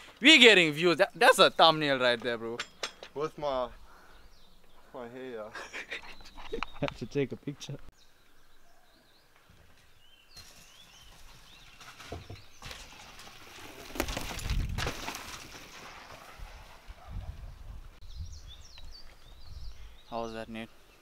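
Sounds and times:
small birds chirping: 0.1 - 12.9, 17.0 - 21.0
bicycle tyres rattling over dirt: 10.3 - 17.9.

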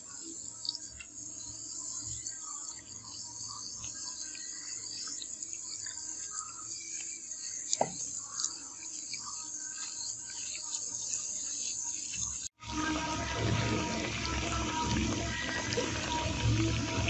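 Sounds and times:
liquid pouring into plastic tub: 12.6 - 17.0
fizzing and bubble pops: 12.7 - 17.0.

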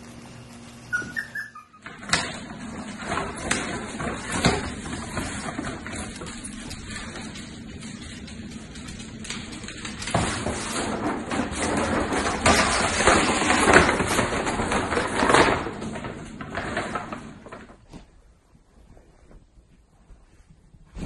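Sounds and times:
plastic bag crinkling and scraping: 2.2 - 18.1.

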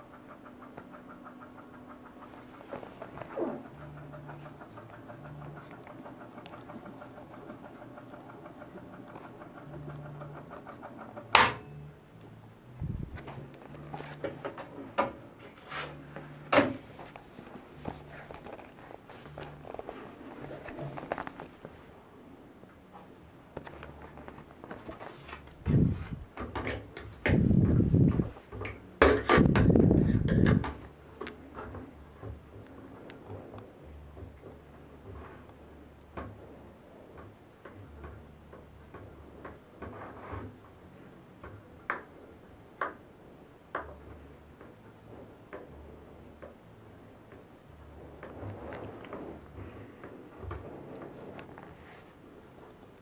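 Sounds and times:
low hum: 0.0 - 39.9.

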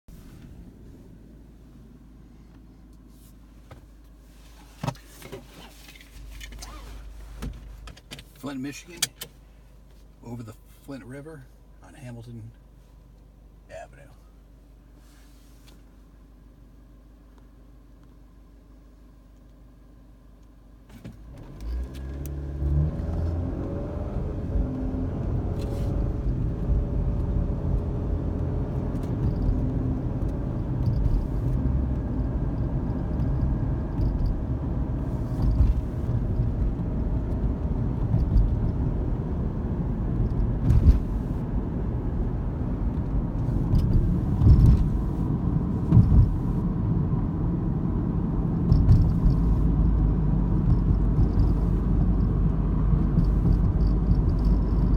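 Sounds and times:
road and tyre noise: 0.1 - 10.4, 19.4 - 54.9
car engine accelerating: 21.2 - 54.9
knocks over bumps: 40.5 - 41.2, 45.8 - 46.5.

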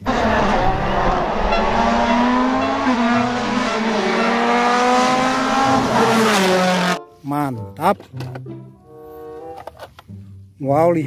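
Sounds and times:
steady rushing noise: 0.0 - 3.9
race car engine at high revs: 0.0 - 7.0.

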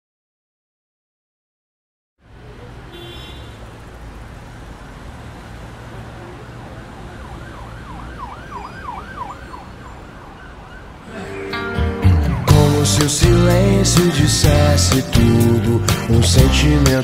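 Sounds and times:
traffic rumble: 2.2 - 17.0
siren yelping: 7.0 - 12.8.

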